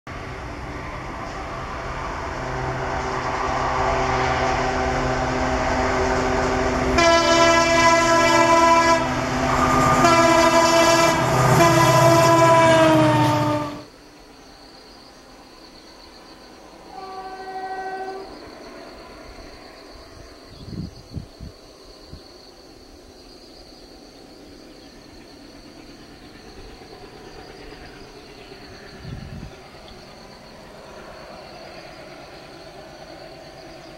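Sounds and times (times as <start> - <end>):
diesel locomotive engine drone: 0.1 - 33.9
distant train rumble: 0.1 - 33.9
train horn blasts: 2.4 - 13.9, 16.9 - 18.4.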